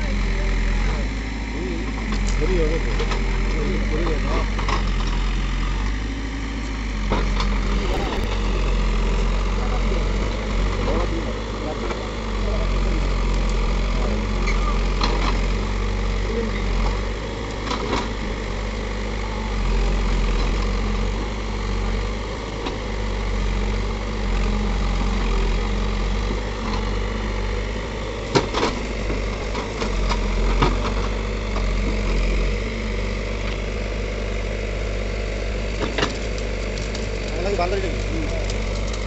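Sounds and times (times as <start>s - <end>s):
diesel engine running: 0.0s - 39.0s.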